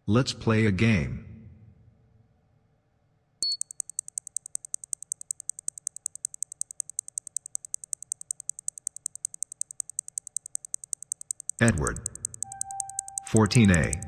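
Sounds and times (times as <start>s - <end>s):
rapid high electronic clicks: 3.4s - 14.0s.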